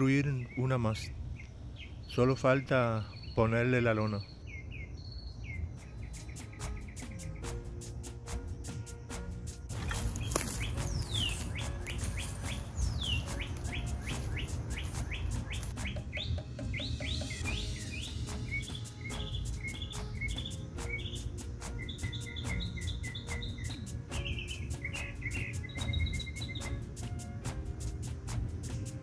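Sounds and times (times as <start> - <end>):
birds chirping and calling: 0.0 - 29.0
steady low rumble: 9.7 - 16.1.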